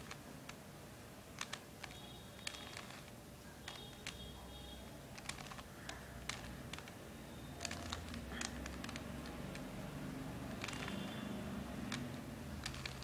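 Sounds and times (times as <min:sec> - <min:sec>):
puzzle cube plastic clicks: 0:00.0 - 0:00.6, 0:01.3 - 0:04.3, 0:05.1 - 0:07.0, 0:07.6 - 0:09.8, 0:10.4 - 0:11.2, 0:11.8 - 0:13.0.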